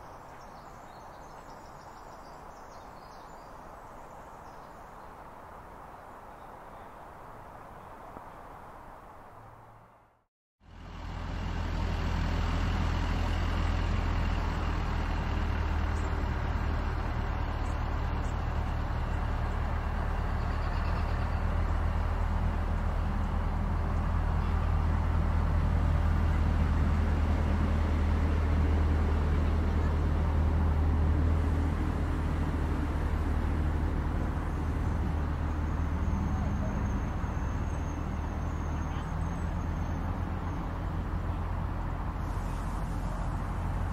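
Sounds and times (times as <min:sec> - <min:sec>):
vehicle engine humming: 0:09.2 - 0:43.9.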